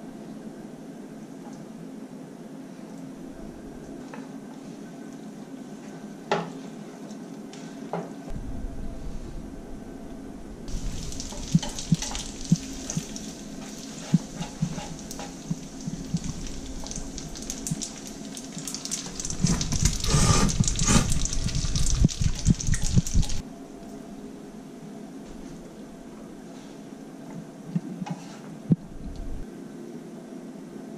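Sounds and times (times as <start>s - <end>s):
pasta sizzling in oil: 10.7s - 23.4s
utensils tapping a pan: 11.0s - 17.0s.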